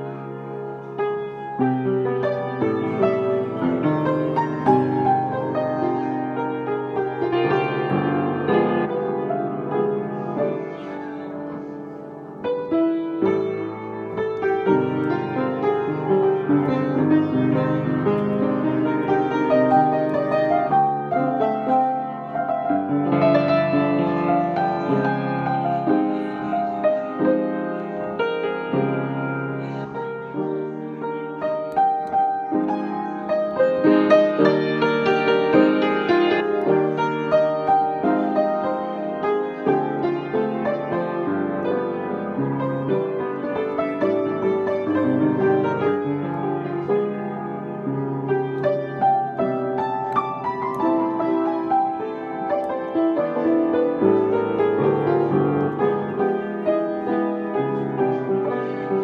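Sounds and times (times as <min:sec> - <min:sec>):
calm piano music: 0:00.0 - 0:59.0.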